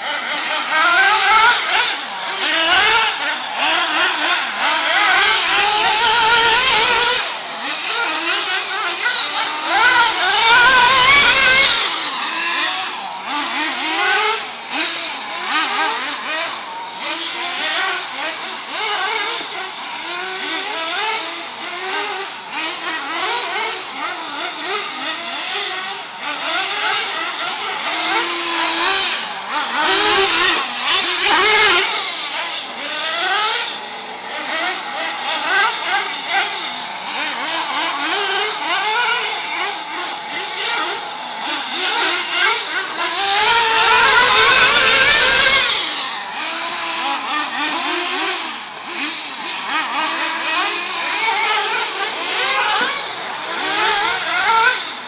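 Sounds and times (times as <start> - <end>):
radio-controlled car motors revving: 0.0 - 55.0.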